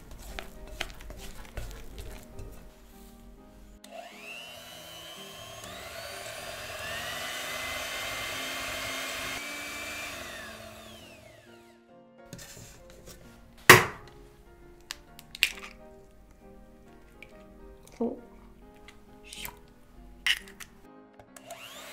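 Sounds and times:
light background music: 0:00.0 - 0:21.9
electric hand mixer whining: 0:03.8 - 0:11.7, 0:21.4 - 0:21.9
egg cracking on bowl: 0:14.9 - 0:15.8, 0:20.2 - 0:20.7.

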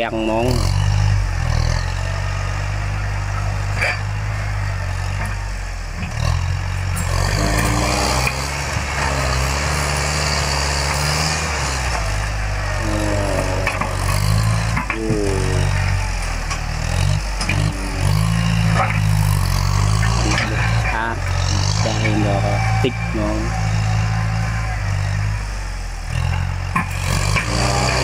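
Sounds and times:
dozer blade pushing soil: 0:00.0 - 0:28.0
tractor diesel engine under load: 0:00.0 - 0:28.0.

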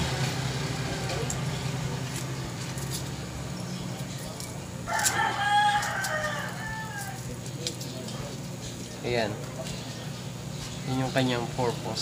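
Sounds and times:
rooster crowing: 0:04.8 - 0:07.4.

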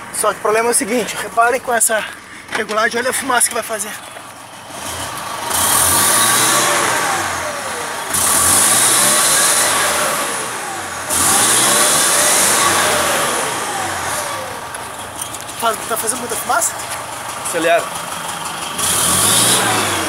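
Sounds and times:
diesel engine revving: 0:04.3 - 0:20.0.

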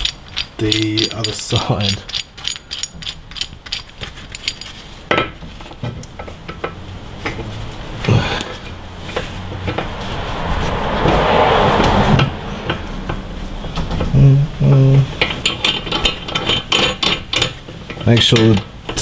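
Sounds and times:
metal tools clinking: 0:00.0 - 0:04.9, 0:15.2 - 0:18.6
steady low hum: 0:00.0 - 0:17.4
rustling scrape: 0:03.8 - 0:14.1.

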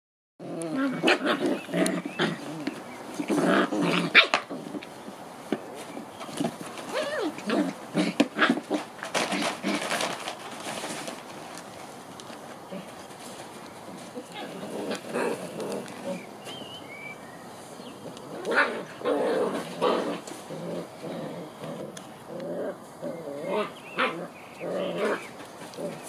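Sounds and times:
puppies growling: 0:00.4 - 0:11.5, 0:12.6 - 0:26.0
puppies yapping: 0:23.0 - 0:26.0.

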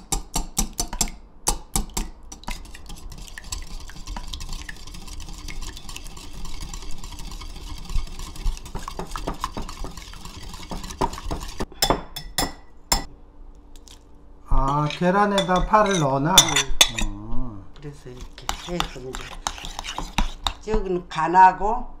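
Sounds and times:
whisk beating eggs in bowl: 0:00.0 - 0:11.7, 0:17.8 - 0:20.7.

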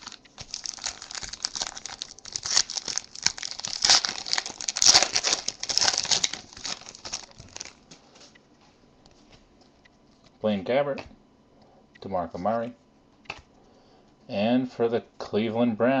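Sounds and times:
foil wrapper tearing and crinkling: 0:00.0 - 0:07.8.

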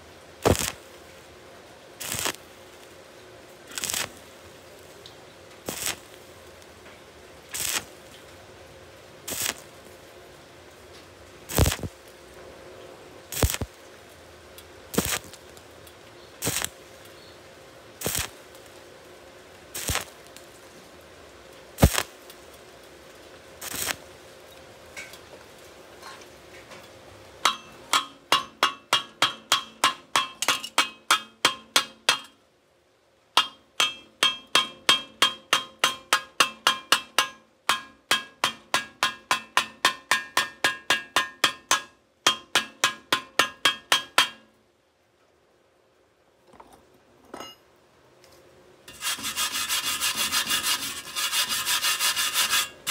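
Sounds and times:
hammer tapping on steel pipe: 0:27.4 - 0:32.4, 0:33.4 - 0:44.5.

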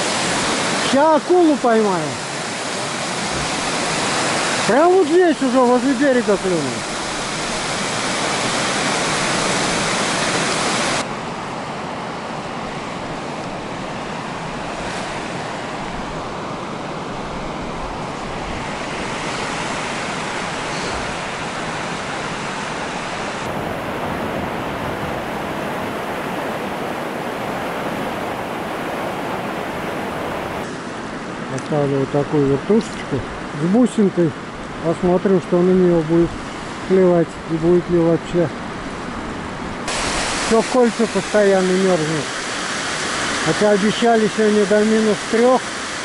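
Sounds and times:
water rushing over weir: 0:00.0 - 0:11.1, 0:13.0 - 0:31.4, 0:39.7 - 0:46.0.

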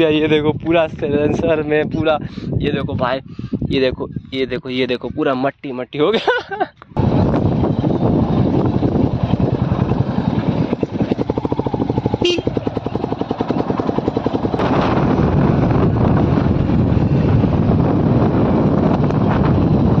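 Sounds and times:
rushing wind noise: 0:00.0 - 0:05.2, 0:06.9 - 0:20.0
motorcycle engine thumping: 0:08.5 - 0:15.4.

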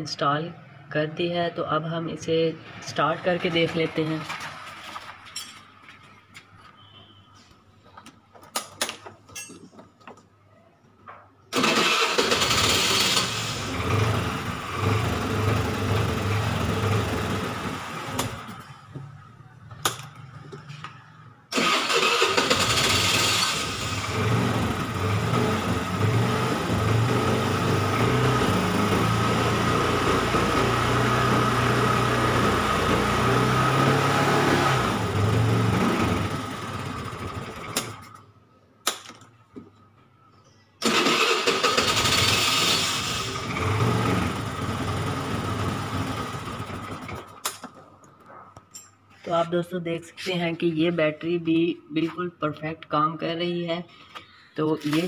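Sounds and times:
electric starter cranking: 0:11.5 - 0:18.6, 0:21.5 - 0:34.1, 0:40.8 - 0:47.6.

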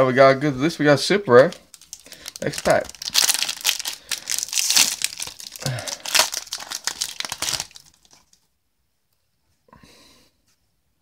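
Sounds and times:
foil wrapper tearing and crinkling: 0:01.4 - 0:08.4.

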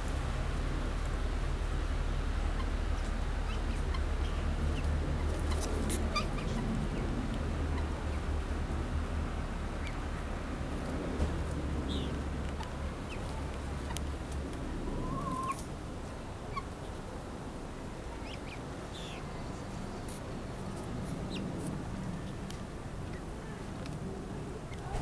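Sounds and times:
guineafowl chicks chirping: 0:02.5 - 0:08.3, 0:09.7 - 0:10.0, 0:11.9 - 0:15.7, 0:16.4 - 0:17.0, 0:18.1 - 0:21.6.

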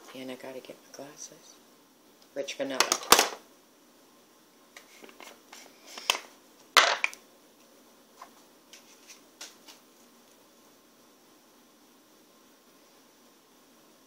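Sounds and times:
clatter of makeup items: 0:02.8 - 0:03.4.

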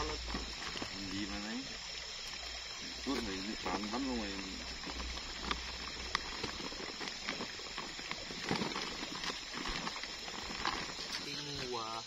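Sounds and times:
plastic sack rustling and crinkling: 0:04.8 - 0:11.7.

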